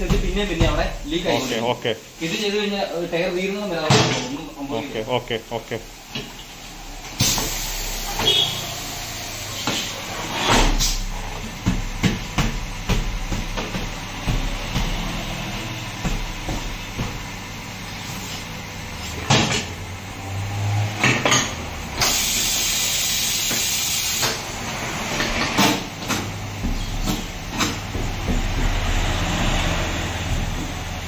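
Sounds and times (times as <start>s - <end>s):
loud air hiss: 7.2s - 11.1s, 22.0s - 24.4s.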